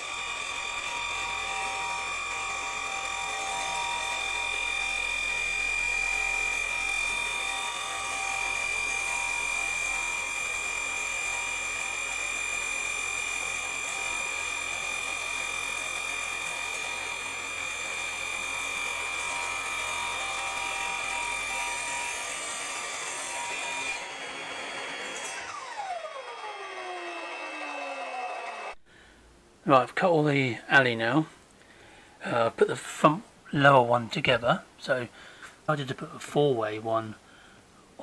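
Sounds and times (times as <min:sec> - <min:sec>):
mitre saw cutting metal: 0:00.0 - 0:28.8.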